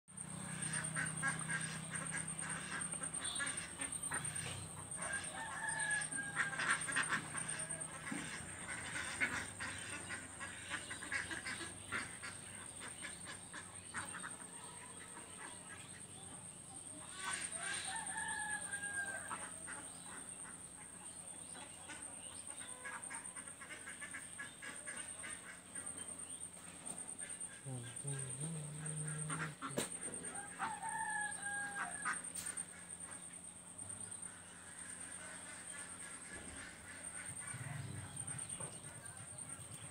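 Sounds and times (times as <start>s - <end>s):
rooster crowing: 4.5s - 8.0s, 17.5s - 19.6s, 28.7s - 32.4s
short bird calls: 26.8s - 33.2s.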